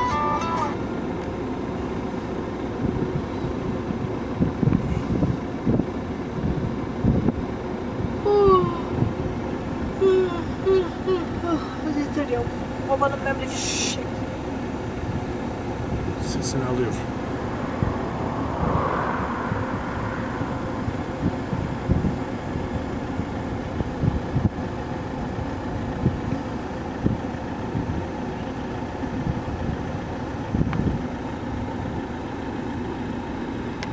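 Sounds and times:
outdoor rumble: 0:00.0 - 0:33.9
wind buffeting microphone: 0:02.8 - 0:13.4, 0:14.9 - 0:31.2.

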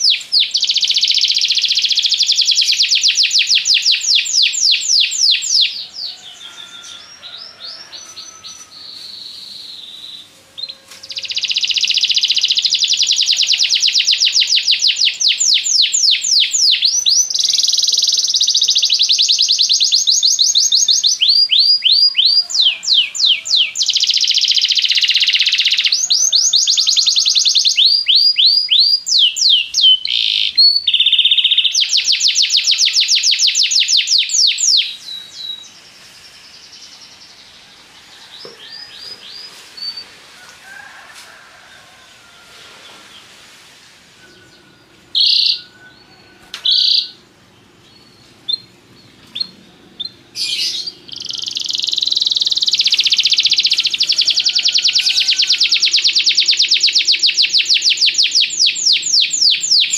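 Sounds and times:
canary trilling: 0:00.0 - 0:09.8, 0:10.5 - 0:35.0, 0:45.1 - 0:46.0, 0:46.7 - 0:47.2, 0:49.3 - 0:59.9
canary chirps: 0:00.0 - 0:37.6, 0:44.2 - 0:47.2, 0:47.9 - 0:59.9.

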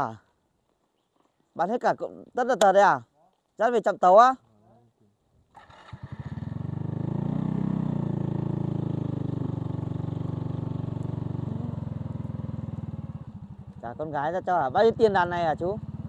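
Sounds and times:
motorcycle engine running: 0:05.6 - 0:16.0.

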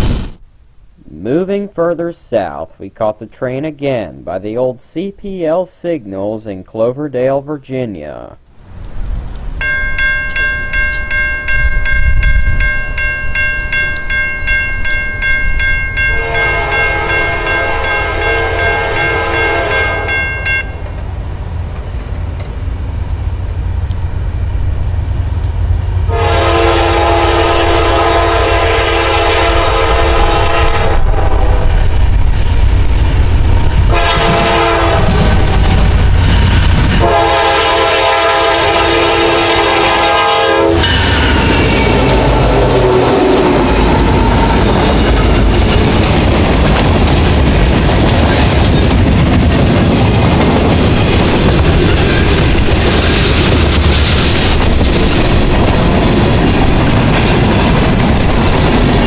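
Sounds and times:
bell ringing rapidly: 0:09.6 - 0:20.8
locomotive air horn blasts: 0:16.1 - 0:20.3, 0:26.1 - 0:31.8, 0:33.9 - 0:35.7, 0:37.0 - 0:44.8.

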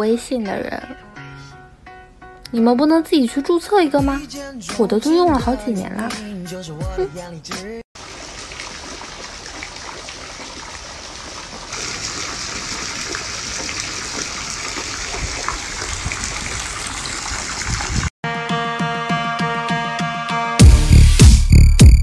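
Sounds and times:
electronic music with steady beat: 0:04.0 - 0:07.8, 0:18.4 - 0:22.0
hot tub water bubbling: 0:08.0 - 0:18.0.

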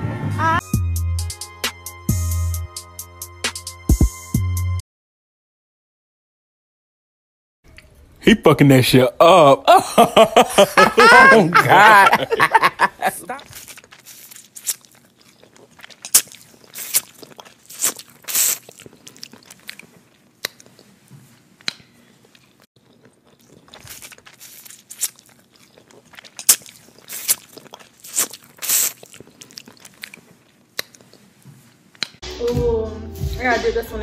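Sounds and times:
chewing: 0:13.4 - 0:32.2
crab shells cracking: 0:13.6 - 0:18.8, 0:23.1 - 0:30.2.

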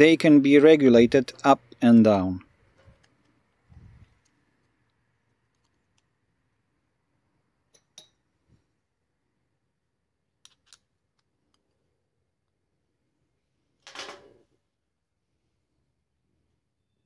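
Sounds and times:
small metal parts clicking: 0:10.4 - 0:11.8.

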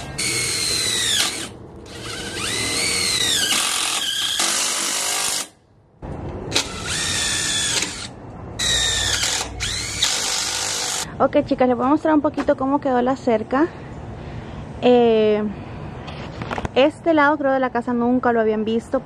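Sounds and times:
cordless drill whining: 0:00.0 - 0:05.5, 0:06.5 - 0:11.0.

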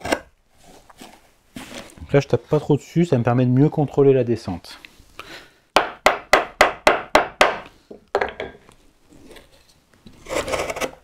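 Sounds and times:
mallet tapping wood chisel: 0:05.8 - 0:08.6.

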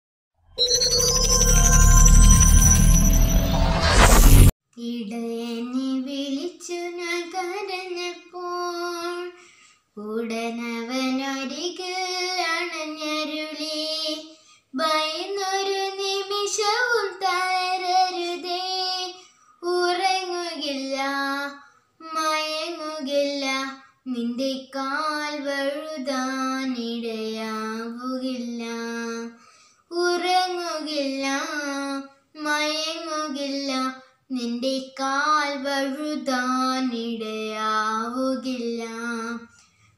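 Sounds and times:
girl singing unaccompanied: 0:04.7 - 0:39.5.

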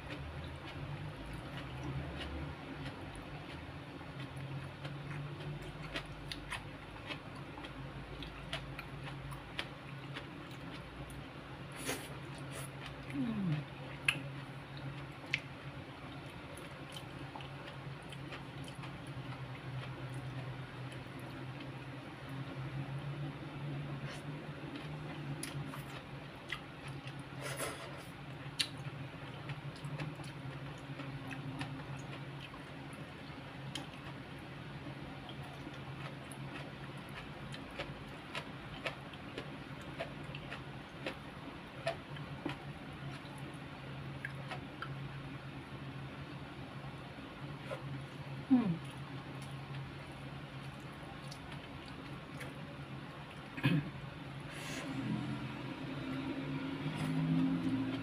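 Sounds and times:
person chewing: 0:00.0 - 0:15.5, 0:16.1 - 0:21.8, 0:24.0 - 0:34.4, 0:35.1 - 0:43.5, 0:44.2 - 0:45.0, 0:48.8 - 0:53.6
steady low hum: 0:00.0 - 0:58.0.

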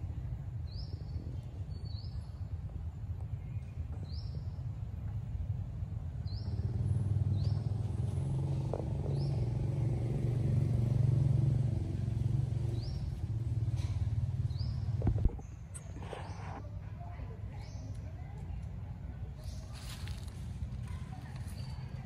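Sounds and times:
vehicle engine rumble: 0:00.0 - 0:22.0
bird chirping: 0:08.7 - 0:10.4, 0:12.2 - 0:16.6.

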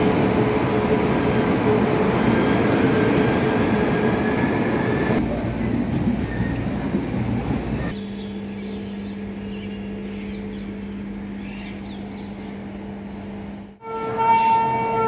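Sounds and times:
steady low hum: 0:07.0 - 0:13.8
birds chirping: 0:07.4 - 0:13.7.

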